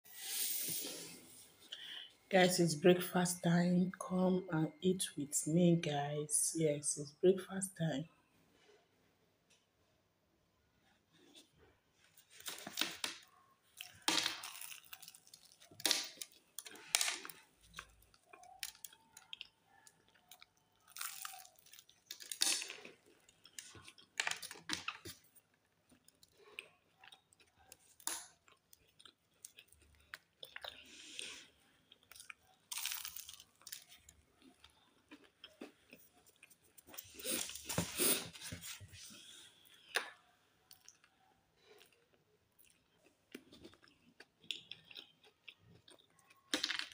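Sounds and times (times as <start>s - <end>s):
person chewing pastry: 10.8s - 46.9s.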